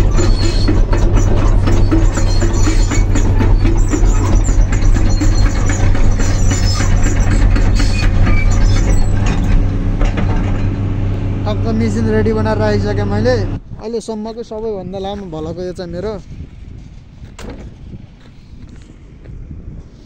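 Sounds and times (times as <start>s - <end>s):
excavator diesel engine running: 0.0s - 13.6s.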